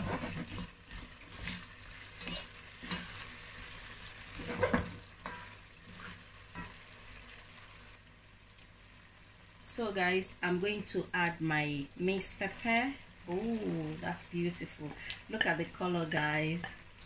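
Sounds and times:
spatula scraping a pot: 0.0s - 3.3s
sauce sizzling: 0.0s - 17.0s.

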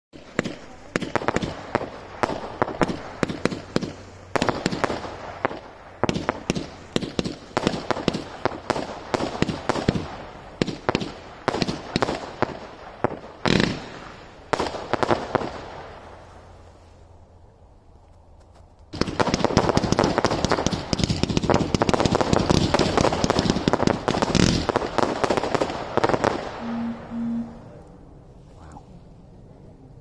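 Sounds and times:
firework bangs and cracks: 0.2s - 16.0s, 18.9s - 26.5s.

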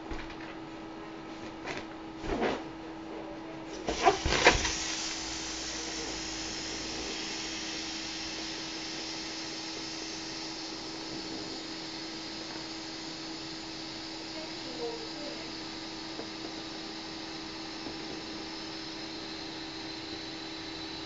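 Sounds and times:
steady rushing hiss: 3.9s - 15.6s.

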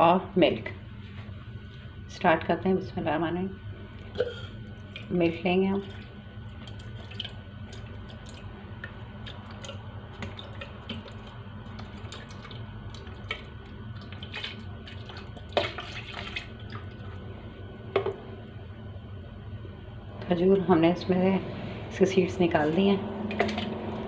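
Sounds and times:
splashes and knocks: 6.7s - 17.1s, 23.3s - 23.8s.

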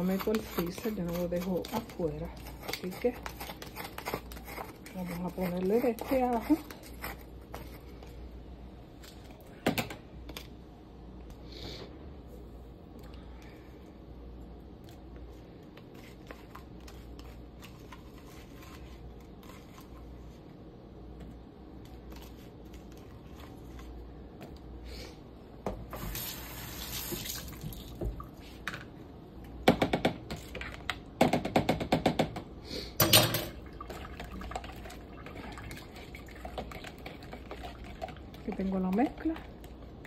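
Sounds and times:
spoon scraping plastic container: 0.0s - 8.0s.

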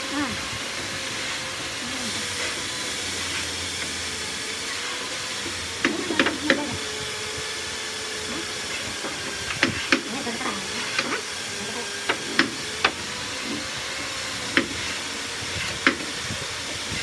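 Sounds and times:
wooden shutter knocking: 5.8s - 6.7s.

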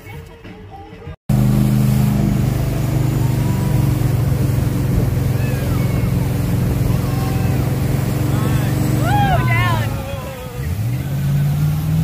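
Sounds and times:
churning wake rushing: 1.3s - 12.0s
motorboat engine drone: 1.3s - 12.0s.

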